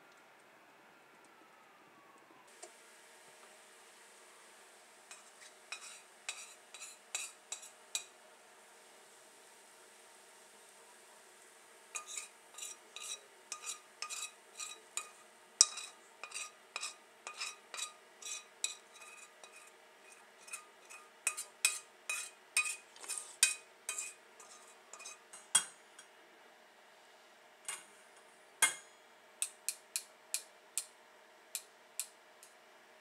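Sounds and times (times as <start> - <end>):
steel spoon clinking on pan: 5.1 - 8.1, 12.0 - 26.1, 28.6 - 30.9.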